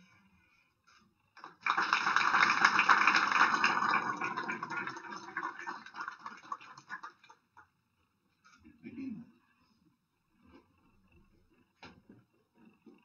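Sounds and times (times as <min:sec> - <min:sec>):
audience applauding: 0:01.4 - 0:07.4.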